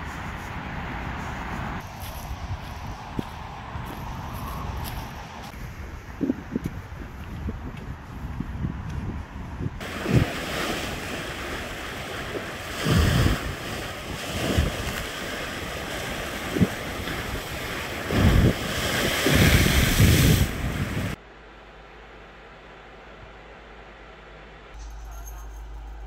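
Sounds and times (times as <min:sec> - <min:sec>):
wind buffeting microphone: 0:00.0 - 0:21.2
water splash: 0:09.8 - 0:21.2
waves breaking on concrete: 0:09.8 - 0:21.2.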